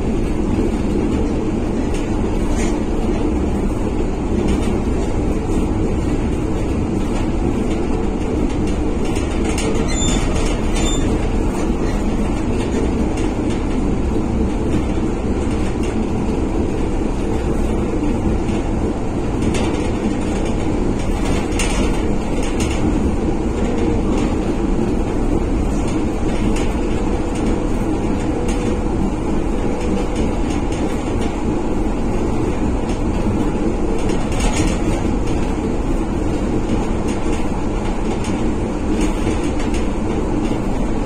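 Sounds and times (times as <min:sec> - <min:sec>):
train cabin running rumble: 0:00.0 - 0:41.0
short high squeaks: 0:09.8 - 0:11.1.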